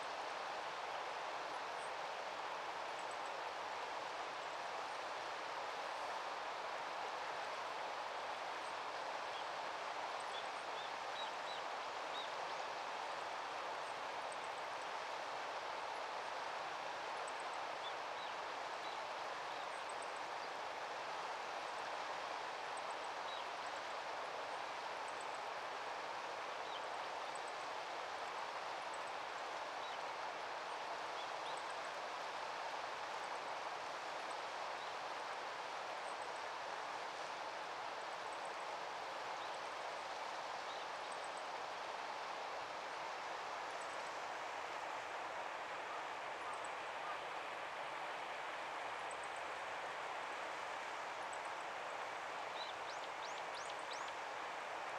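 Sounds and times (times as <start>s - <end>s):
outdoor background hiss: 0.0s - 54.9s.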